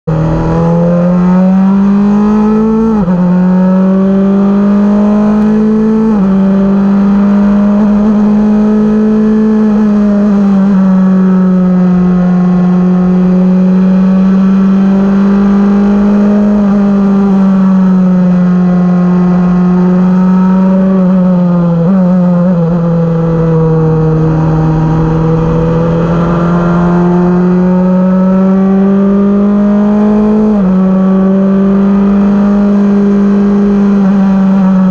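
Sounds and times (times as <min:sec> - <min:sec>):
race car engine at speed: 0:00.0 - 0:34.9.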